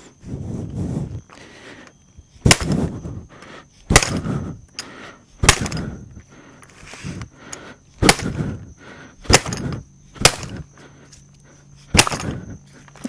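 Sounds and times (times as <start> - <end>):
metallic strikes with ringing: 3.9 - 4.3, 9.3 - 10.7.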